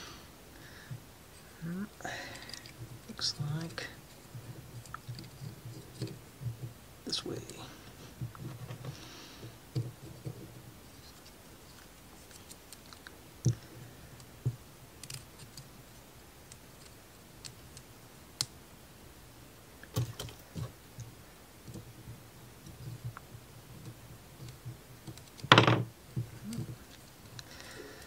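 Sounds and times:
wooden parts clicking and tapping: 2.3s - 6.8s, 8.2s - 15.7s, 19.8s - 28.0s.

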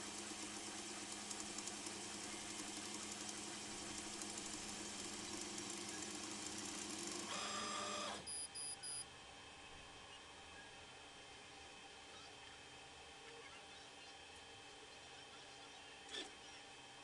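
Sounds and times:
laser engraver humming: 0.0s - 9.2s
engraver head whirring: 1.1s - 8.3s
short high beeps: 8.3s - 9.0s.

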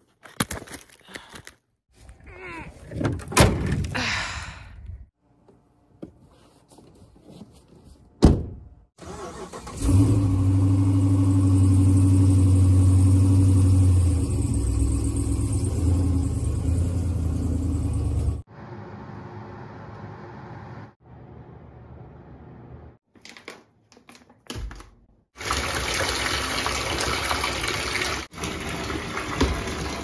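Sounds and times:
car door thumping shut: 8.2s - 8.7s
truck engine running: 10.4s - 18.9s.

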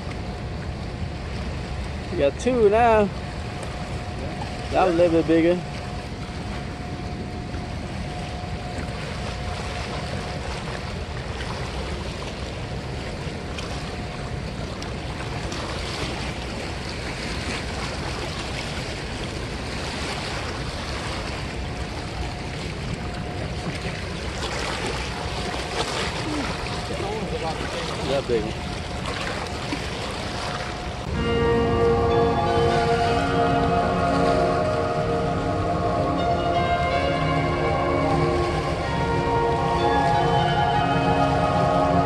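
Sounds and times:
wind on microphone: 5.4s - 31.2s
turbulent river water rushing: 23.6s - 42.0s.

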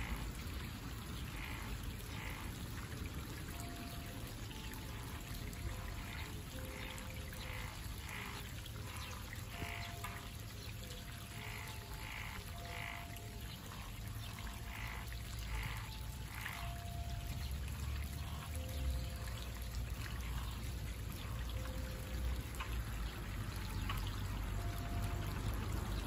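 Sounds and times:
frogs croaking: 0.0s - 26.0s
small stream trickling: 0.0s - 26.0s.

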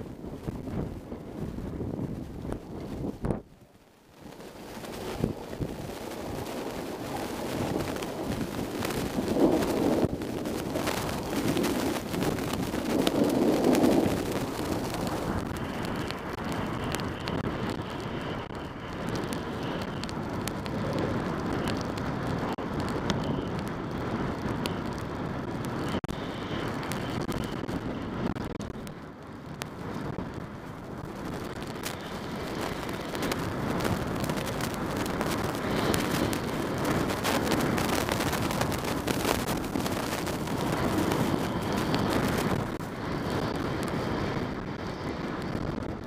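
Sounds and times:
wind rushing over microphone: 0.0s - 46.0s
skis scraping over snow: 4.1s - 23.5s, 30.8s - 45.9s.

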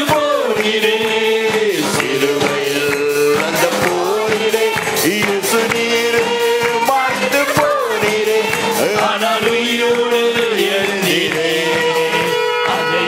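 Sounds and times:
instrumental accompaniment with beat: 0.0s - 13.0s
worship song singing: 0.0s - 13.0s.

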